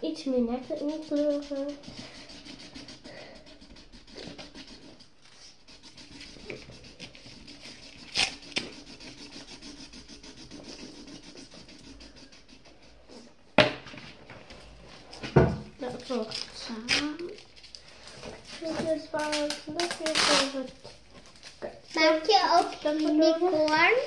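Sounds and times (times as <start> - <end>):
pen scribbling on paper: 0.0 - 13.3.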